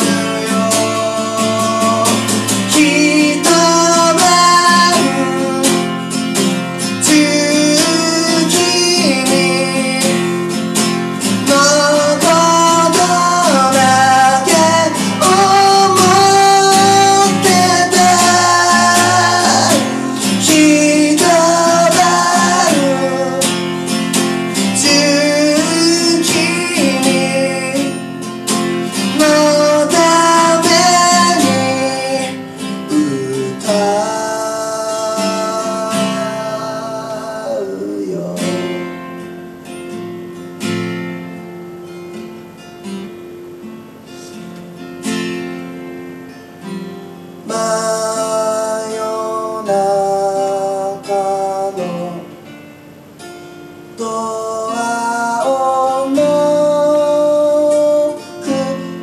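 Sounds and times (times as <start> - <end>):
man singing: 0.0 - 39.1, 47.4 - 52.5, 54.0 - 59.0
acoustic guitar strumming: 0.0 - 59.0.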